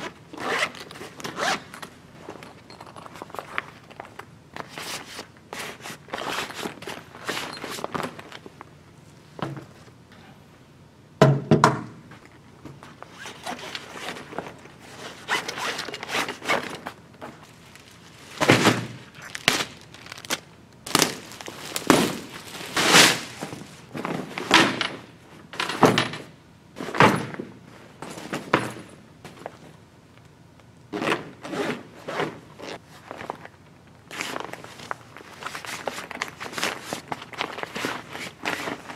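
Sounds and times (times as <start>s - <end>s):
fabric rustling: 13.2s - 24.4s
plastic wrapping crinkling: 15.6s - 23.9s, 33.0s - 38.9s.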